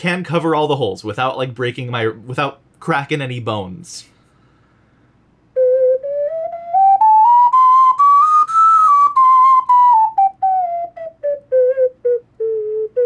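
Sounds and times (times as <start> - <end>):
ocarina playing a scale: 5.6 - 13.0.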